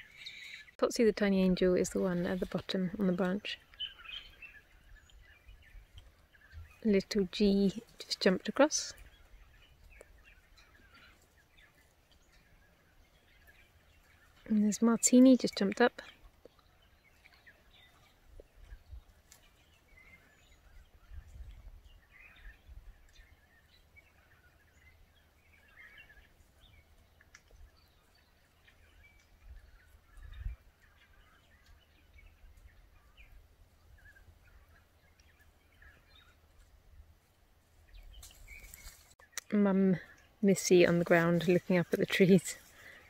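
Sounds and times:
faint bird calls: 0.0 - 0.8.

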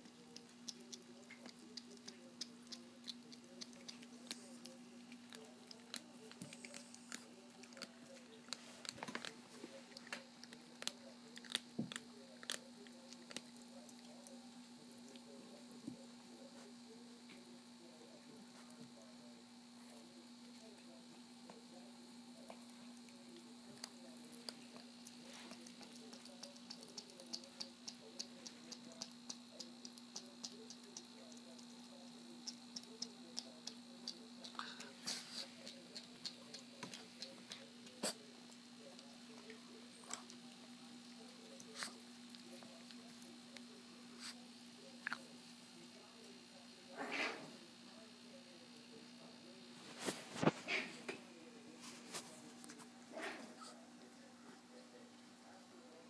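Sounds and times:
dog chewing bone: 0.0 - 14.1, 23.8 - 31.7
steady low hum: 0.0 - 56.0.

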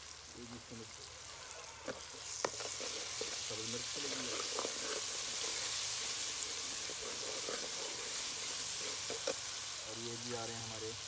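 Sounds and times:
masala sizzling in hot oil: 0.0 - 11.0
metal ladle stirring: 2.3 - 9.6.

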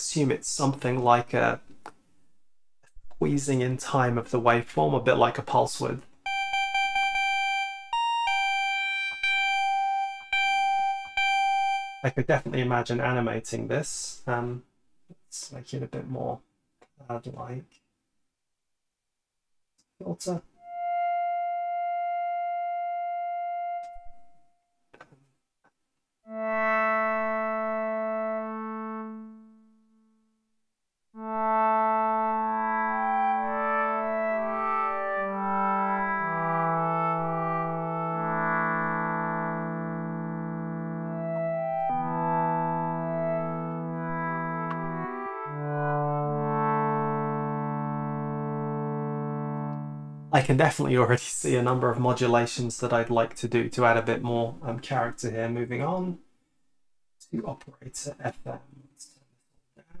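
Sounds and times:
synthesizer notes: 6.2 - 12.2, 20.6 - 24.5, 26.3 - 30.0, 31.2 - 50.4
high bright synthesizer note: 6.3 - 12.2, 20.6 - 24.3, 26.3 - 29.7
synthesizer chord: 6.3 - 12.2, 20.6 - 24.4, 26.3 - 30.2, 31.2 - 50.4.

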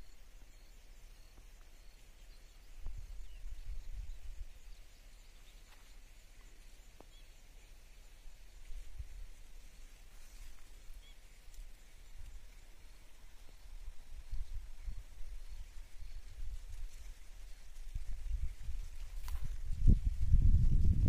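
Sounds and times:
faint bird chirps: 0.0 - 19.6
wind rumble on microphone: 2.5 - 5.4, 8.3 - 21.0.

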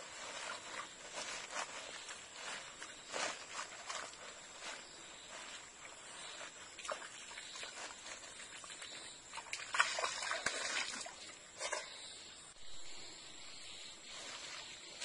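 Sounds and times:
leaves and plants rustling: 0.0 - 12.0, 12.8 - 15.0
stream water trickling: 5.8 - 12.1
splashing: 6.2 - 12.0.

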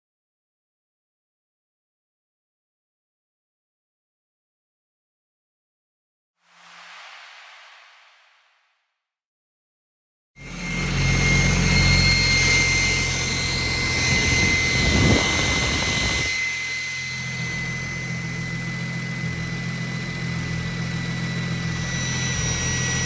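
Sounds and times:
rush of air: 6.4 - 8.9
high turbo compressor whine: 10.4 - 23.0.

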